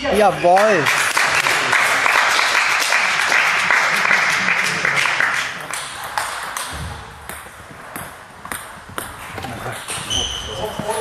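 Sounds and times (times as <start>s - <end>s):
applause: 0.3s - 6.6s.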